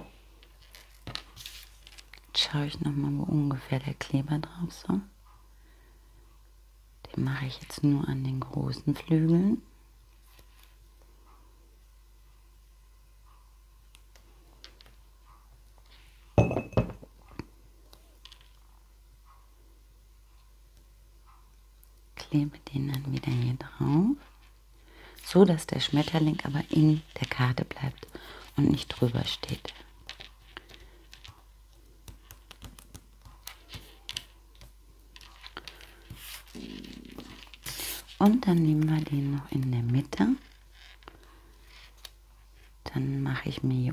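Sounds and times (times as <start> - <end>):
paper rustling: 0.6 - 2.2, 35.2 - 38.8
glassy ring: 16.4 - 16.9
fingers tapping paper: 29.1 - 40.1.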